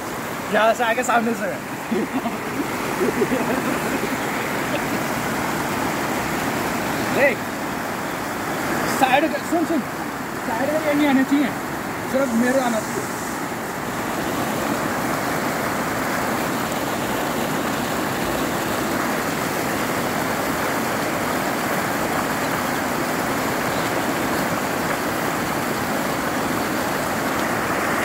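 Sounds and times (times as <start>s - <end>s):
water rushing: 0.0s - 28.0s.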